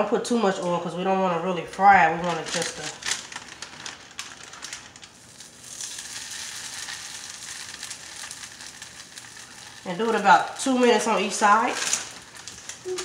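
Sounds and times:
dough crackling in a skillet: 0:02.1 - 0:13.0
tortilla sizzling in a skillet: 0:03.2 - 0:13.0.

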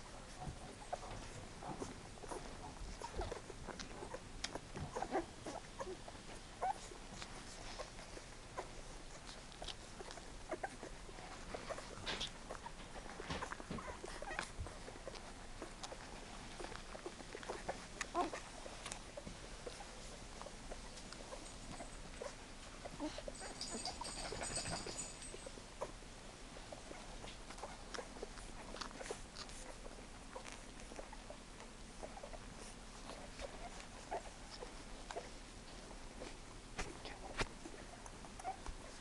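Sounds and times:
puppies sucking and smacking: 0:00.0 - 0:39.0
puppies squeaking: 0:00.4 - 0:06.0, 0:06.6 - 0:26.0, 0:37.8 - 0:39.0.

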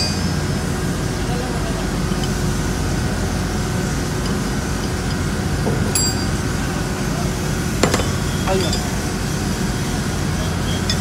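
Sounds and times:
machine drone with low hum: 0:00.0 - 0:11.0.

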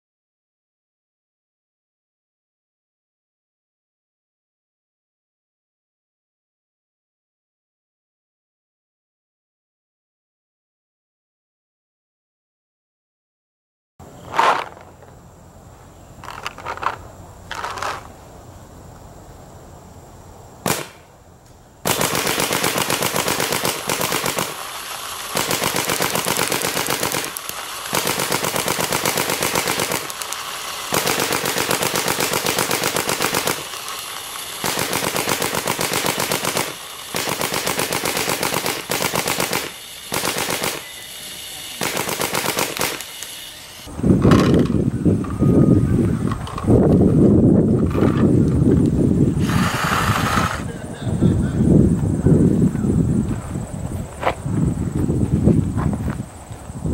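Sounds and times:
paintball marker firing: 0:20.7 - 0:21.1, 0:21.9 - 0:40.9, 0:41.8 - 0:43.3.

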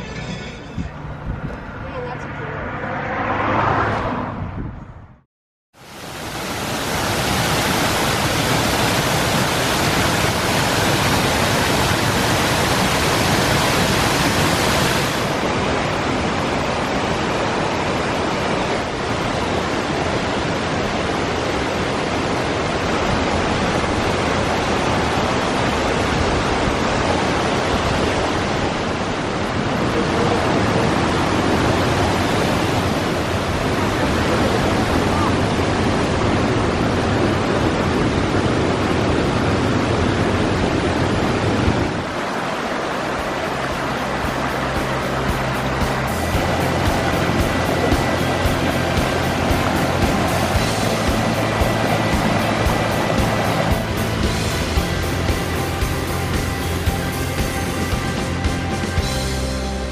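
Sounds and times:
waterfall rushing: 0:05.8 - 0:59.9.

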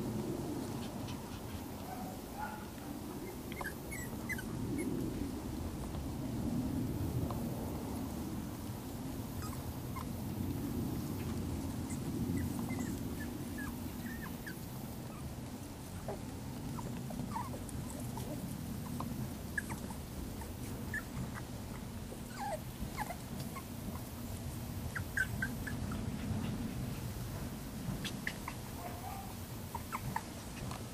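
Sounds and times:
steady low rumble: 0:00.0 - 0:30.9
puppies whimpering and squeaking: 0:03.2 - 0:05.0, 0:09.4 - 0:10.1, 0:11.8 - 0:15.4, 0:16.0 - 0:24.1, 0:24.8 - 0:26.9, 0:28.0 - 0:30.9.

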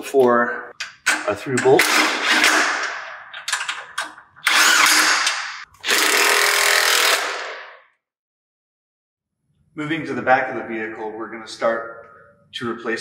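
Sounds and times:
cordless power tool bursts: 0:04.5 - 0:07.5.

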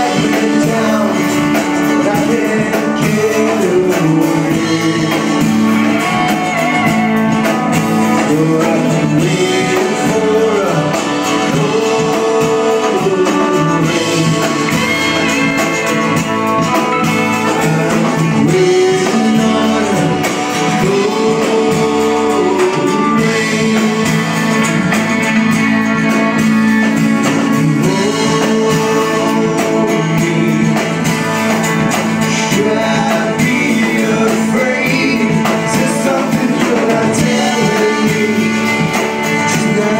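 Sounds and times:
drums: 0:00.0 - 0:39.9
electric guitar: 0:00.0 - 0:39.9
man singing: 0:00.0 - 0:39.9
strummed acoustic guitar: 0:00.0 - 0:39.9.

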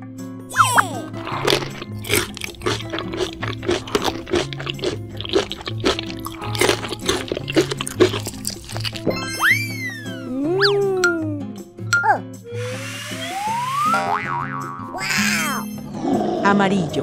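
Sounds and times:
background music: 0:00.0 - 0:17.0
cartoon candy crunching: 0:00.5 - 0:09.9
sliding whistle tone: 0:12.6 - 0:14.0.

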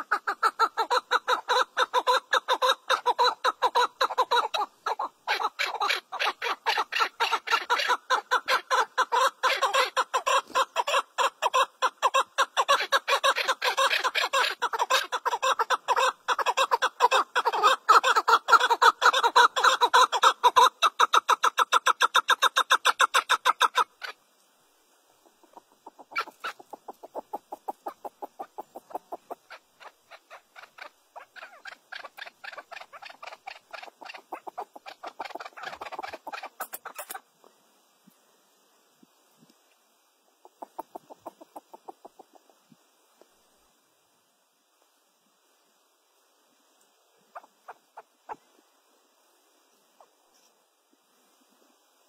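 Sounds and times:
partridge clucking call: 0:00.0 - 0:24.2, 0:25.2 - 0:37.2, 0:40.4 - 0:42.6, 0:47.3 - 0:48.4.

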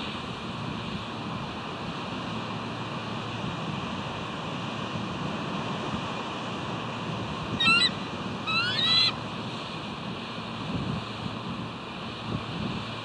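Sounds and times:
surf: 0:00.0 - 0:13.0
wind: 0:00.0 - 0:13.0
eagle calling: 0:07.6 - 0:09.2.

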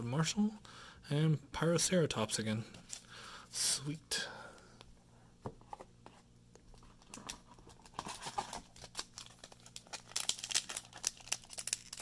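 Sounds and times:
foil wrapper crinkling: 0:06.7 - 0:12.0.

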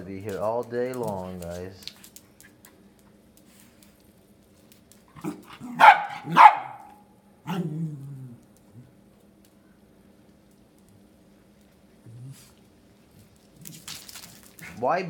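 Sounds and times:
dog grumbling: 0:05.2 - 0:06.9, 0:07.5 - 0:09.0, 0:12.0 - 0:12.7
small dog barking: 0:05.2 - 0:07.7.

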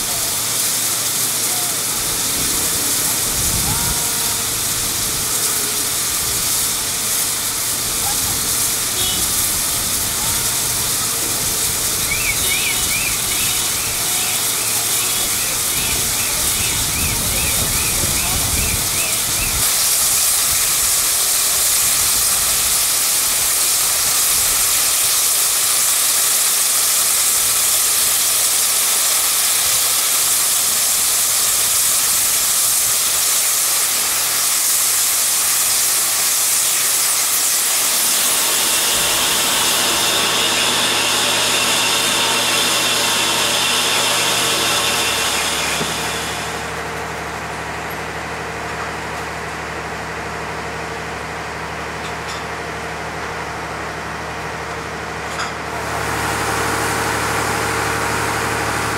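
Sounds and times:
steam locomotive hissing steam: 0:00.0 - 0:47.9
steady hum: 0:36.4 - 0:47.2.

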